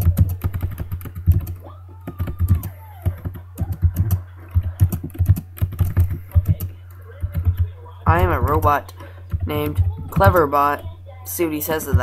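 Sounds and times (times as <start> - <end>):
keyboard typing clicks: 0.0 - 7.6
steady low hum: 0.0 - 12.0.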